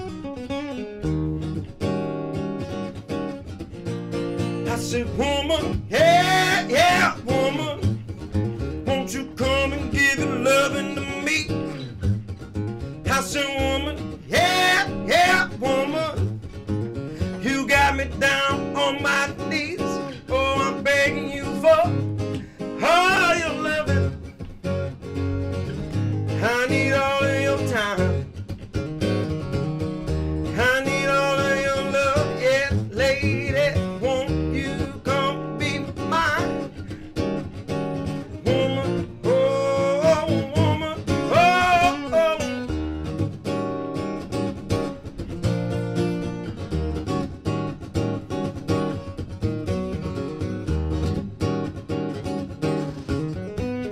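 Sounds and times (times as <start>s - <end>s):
acoustic guitar strumming blues: 0.0s - 53.9s
man singing: 4.6s - 8.0s, 8.7s - 11.9s, 13.0s - 16.3s, 17.2s - 24.2s, 26.3s - 28.4s, 30.4s - 36.8s, 38.2s - 42.8s.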